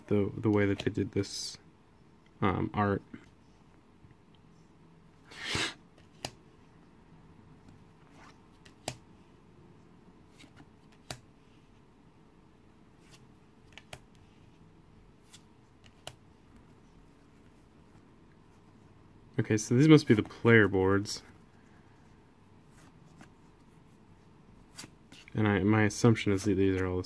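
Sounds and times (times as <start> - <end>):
light clicks of card edges: 13.0 - 14.2.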